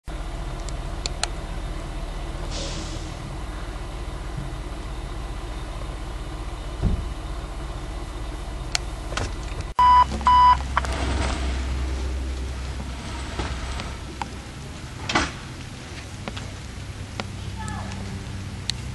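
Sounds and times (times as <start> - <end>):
diesel engine idling: 0.0 - 18.9
short electronic beeps: 9.8 - 10.6.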